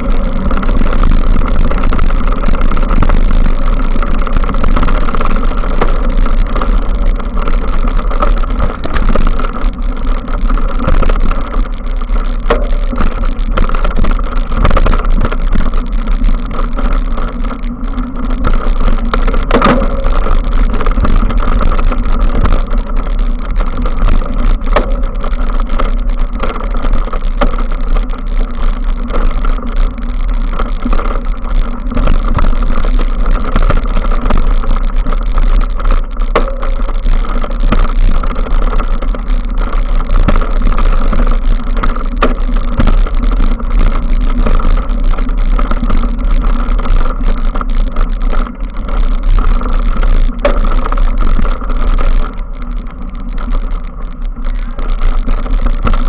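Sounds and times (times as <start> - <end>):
bike tyres rumbling on dirt: 0.0 - 56.0.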